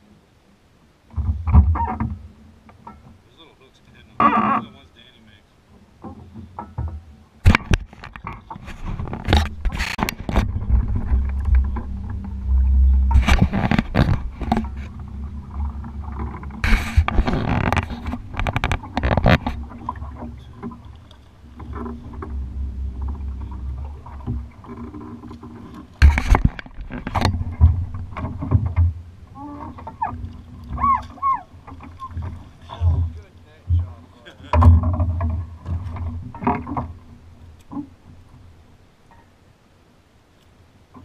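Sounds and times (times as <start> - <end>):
sharp knocks on boat: 6.0 - 20.8, 21.6 - 29.0, 29.7 - 37.1
wind rumble on microphone: 6.3 - 38.4
microphone handling noise: 6.8 - 30.2
rapid scraping ticks: 7.5 - 28.8.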